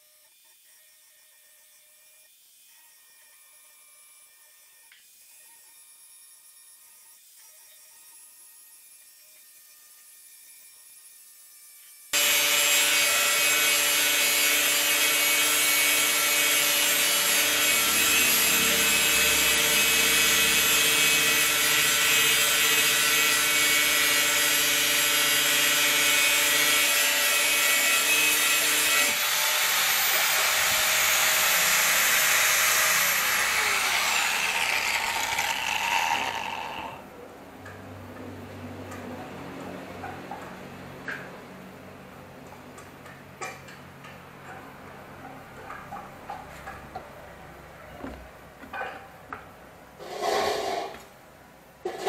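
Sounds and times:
angle grinder grinding steel: 12.2 - 37.0.

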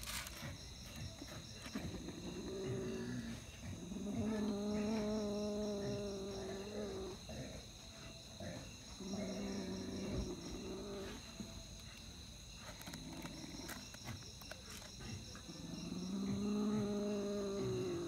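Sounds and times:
crickets chirring: 0.0 - 18.0
cat growling: 1.8 - 7.6, 8.4 - 11.2, 15.3 - 18.0.

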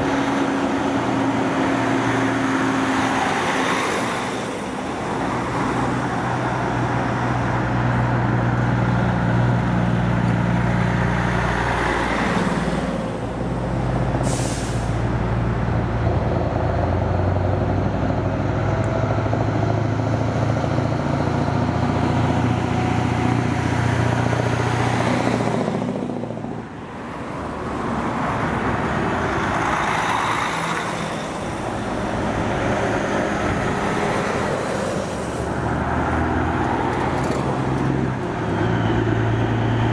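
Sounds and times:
diesel truck approaching: 0.0 - 39.9
traffic passing: 0.0 - 39.9
air brake hiss: 14.2 - 15.0.

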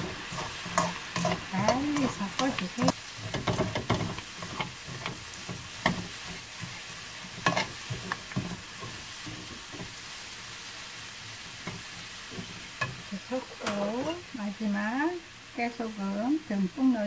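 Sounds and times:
utensils clicking against pan: 0.0 - 6.8, 7.4 - 9.6
utensils scraping a pan: 0.0 - 9.9
food sizzling in a frying pan: 0.0 - 17.0.

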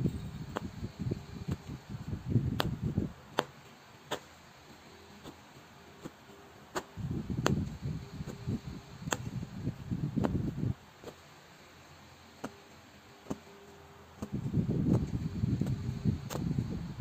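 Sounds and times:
punch needle clicks through cloth: 0.5 - 0.8, 2.5 - 4.3, 6.0 - 9.4, 10.2 - 11.2, 12.4 - 12.6, 13.2 - 13.5, 14.2 - 16.6.

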